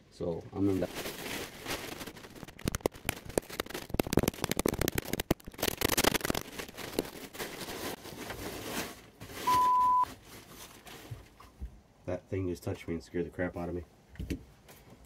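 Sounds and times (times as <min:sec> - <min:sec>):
plastic wrap sheet crinkling: 0:00.6 - 0:11.4.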